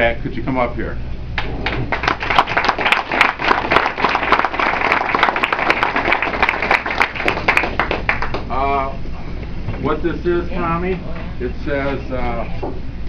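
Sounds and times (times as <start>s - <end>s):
audience applauding: 1.4s - 8.5s.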